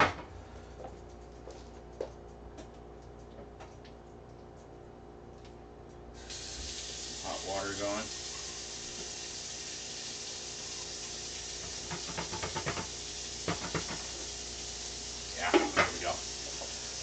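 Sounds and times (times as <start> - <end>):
water running from tap: 6.2 - 17.0.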